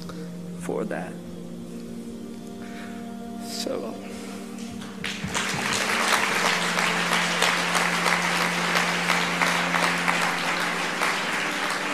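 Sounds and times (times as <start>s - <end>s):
audience applauding: 4.8s - 11.9s.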